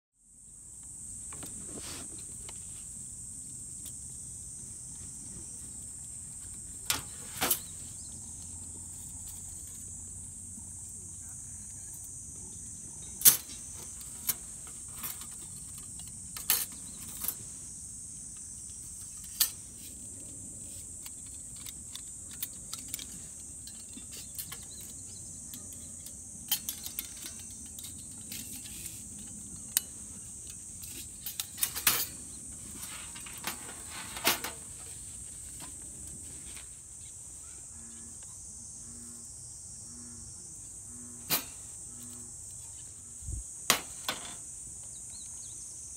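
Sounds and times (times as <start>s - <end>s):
insects droning: 0.2s - 45.9s
metal plates clinking: 30.8s - 34.7s.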